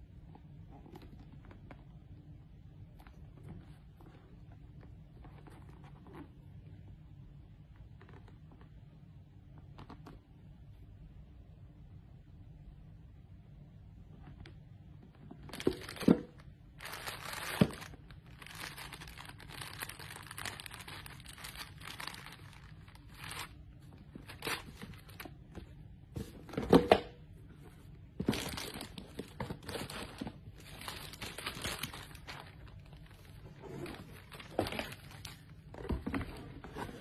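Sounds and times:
plastic packaging crinkling: 0:15.3 - 0:25.5, 0:28.2 - 0:37.0.

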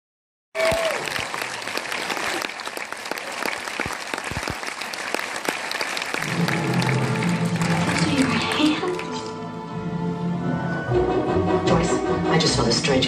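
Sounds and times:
audience applauding: 0:00.6 - 0:09.3.

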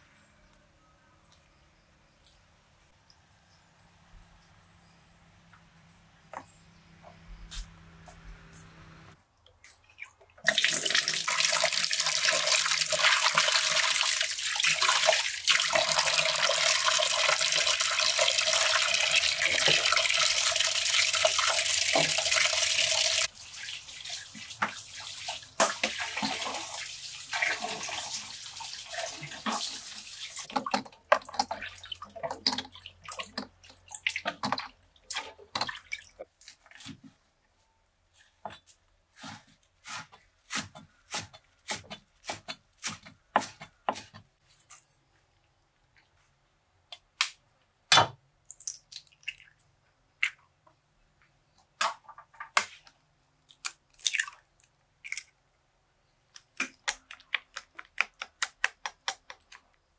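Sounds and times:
water running from tap: 0:10.5 - 0:30.6.

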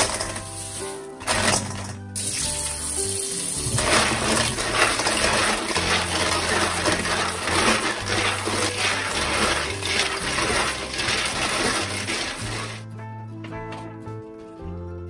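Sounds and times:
tap water running into bowl: 0:02.2 - 0:12.8.

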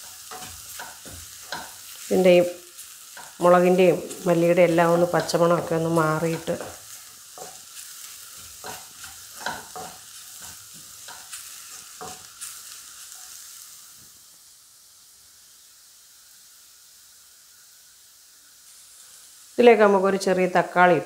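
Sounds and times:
spatula scraping wok: 0:00.0 - 0:14.0
masala sizzling: 0:00.0 - 0:21.0.

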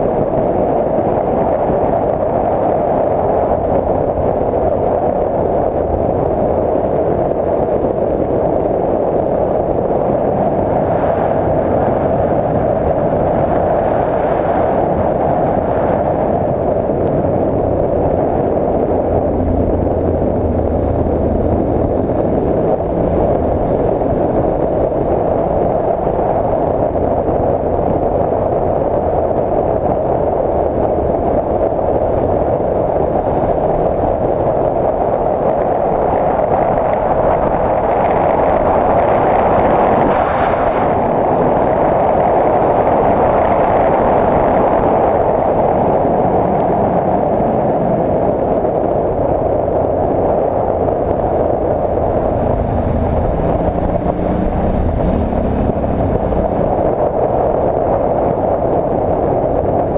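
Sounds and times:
wind on microphone: 0:00.0 - 0:59.9
motorcycle engine: 0:17.6 - 0:29.8, 0:50.7 - 0:57.1.

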